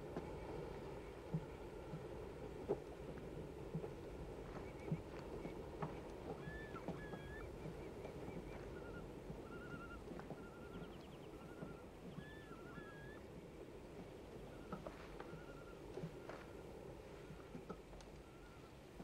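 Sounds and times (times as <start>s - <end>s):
low steady haze: 0.0s - 19.0s
small birds chirping: 4.4s - 13.3s, 14.0s - 18.8s.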